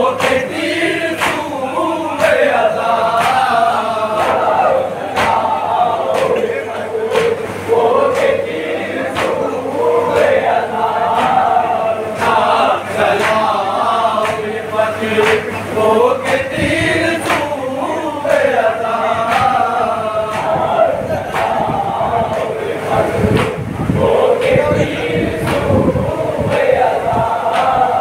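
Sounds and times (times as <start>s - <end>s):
men chanting a lament: 0.0s - 28.0s.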